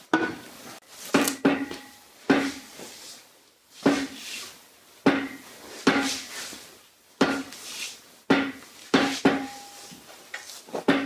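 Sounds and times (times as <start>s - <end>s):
hammer striking metal rod: 1.1s - 2.6s, 5.1s - 6.2s, 7.2s - 7.5s, 8.3s - 9.9s.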